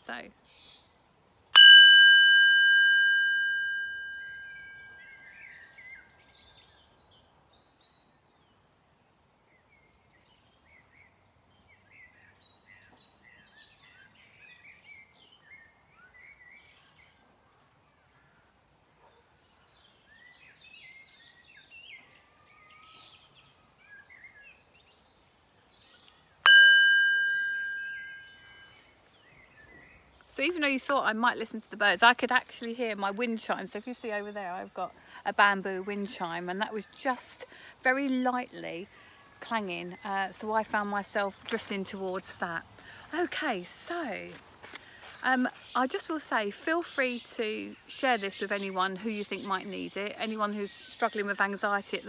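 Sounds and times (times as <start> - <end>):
singing bowl ringing: 1.6 - 5.2, 26.4 - 28.8
birds chirping faintly: 2.3 - 52.0.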